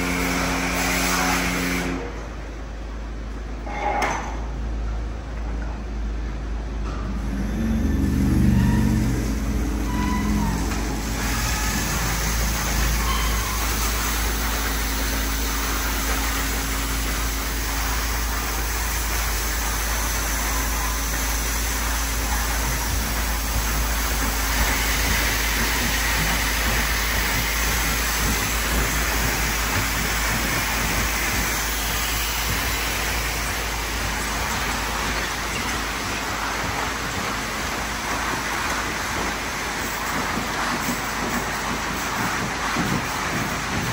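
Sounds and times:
water spray: 0.0 - 2.0, 8.0 - 43.9
low motor hum: 4.5 - 39.4
car wash brushes scrubbing: 7.9 - 43.9.

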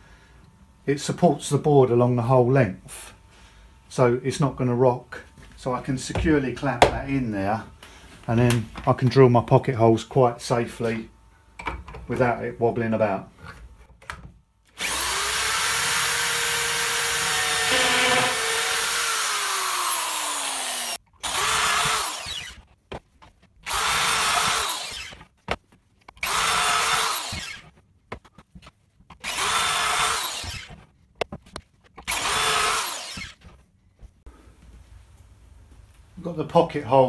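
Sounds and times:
power drill boring into wood: 14.8 - 22.6, 23.6 - 25.2, 26.2 - 27.7, 29.2 - 30.8, 32.0 - 33.4.

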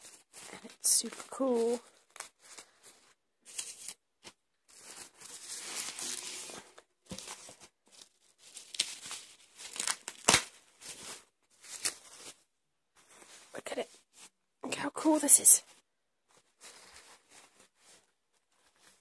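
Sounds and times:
bubble wrap crinkling: 0.0 - 14.4, 15.2 - 19.0
bubble wrap snapping: 3.5 - 12.4.

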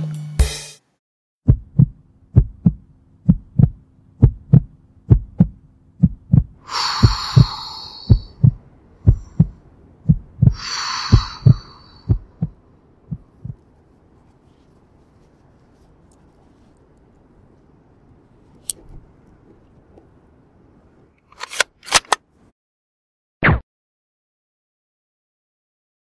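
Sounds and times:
heartbeat thumps: 1.4 - 13.8
faint low hum: 1.5 - 21.2
long slow breaths: 6.6 - 9.7, 10.4 - 12.5.

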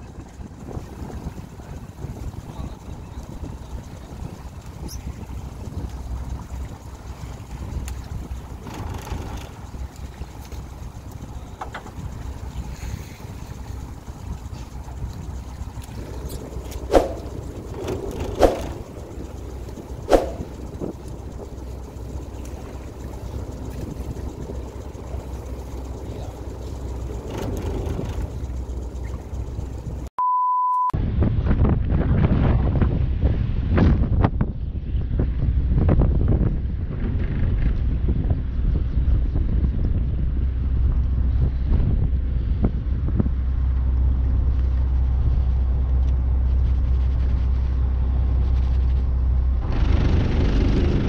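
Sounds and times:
boat engine rumble: 0.0 - 30.1, 31.0 - 51.0
wind buffeting microphone: 0.0 - 30.1, 31.0 - 51.0
steady beep: 30.2 - 31.0.

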